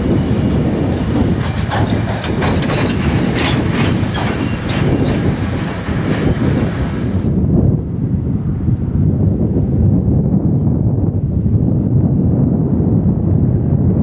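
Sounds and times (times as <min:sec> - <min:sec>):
train wheels clicking over rail joints: 0:00.0 - 0:07.1
freight train rumble: 0:00.0 - 0:14.0.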